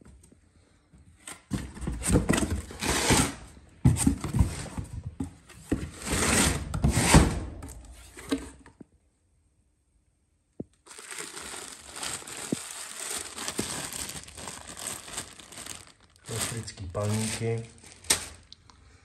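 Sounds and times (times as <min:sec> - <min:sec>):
plastic packages rustling: 0:10.7 - 0:18.6.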